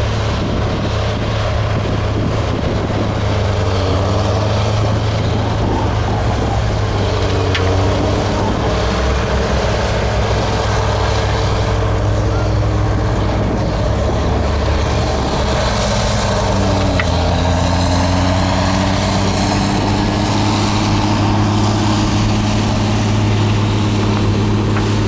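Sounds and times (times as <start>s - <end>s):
heavy machinery engine running: 0.0s - 25.0s.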